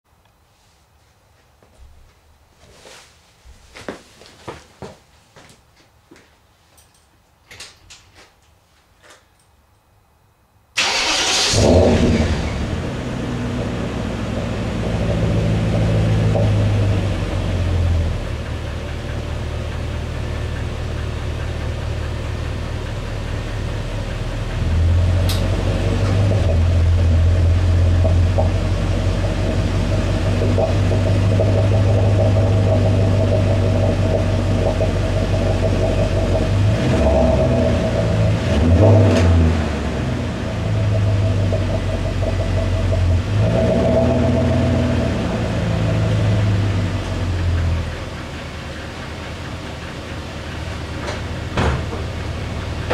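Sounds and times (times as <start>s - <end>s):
car engine starting and idling: 10.8s - 52.9s.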